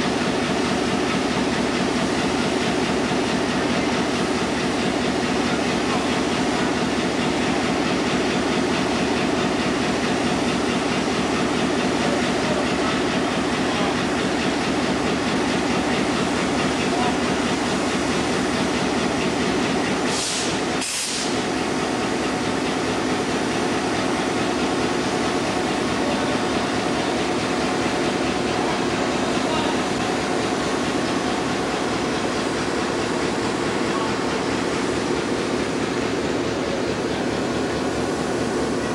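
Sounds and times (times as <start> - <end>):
diesel locomotive engines idling: 0.0 - 38.9
short hisses: 20.1 - 21.4.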